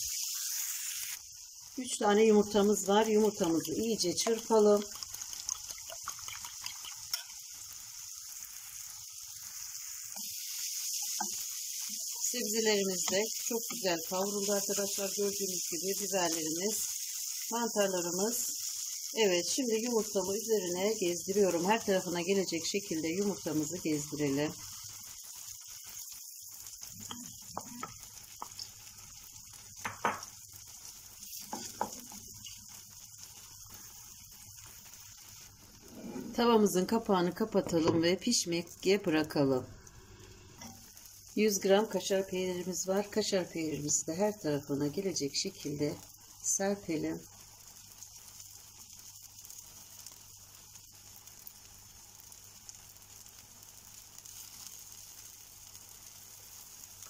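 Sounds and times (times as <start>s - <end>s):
eggs sizzling in frying pan: 0.0s - 57.0s
wooden spatula scraping pan: 35.7s - 36.6s.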